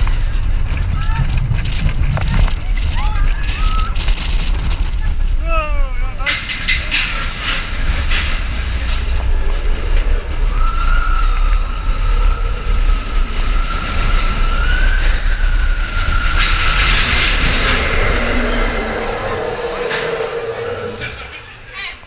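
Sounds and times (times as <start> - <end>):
roller coaster rumble on track: 0.0 - 22.0
high squeal: 10.4 - 22.0.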